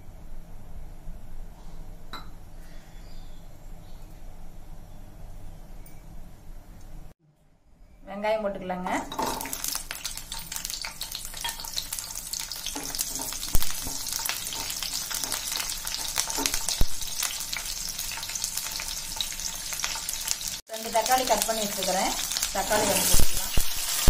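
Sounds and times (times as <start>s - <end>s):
onions sizzling in hot oil: 9.1s - 24.0s.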